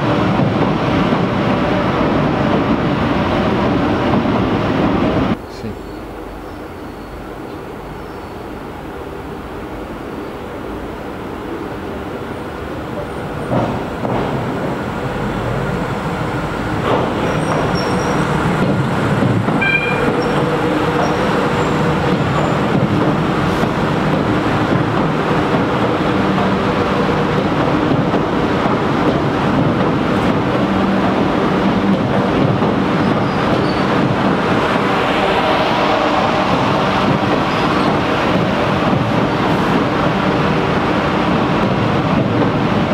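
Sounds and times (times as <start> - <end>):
train rumbling: 0.0 - 42.9
train wheels squealing: 17.2 - 18.4, 19.6 - 22.7, 33.0 - 34.0, 37.4 - 38.0.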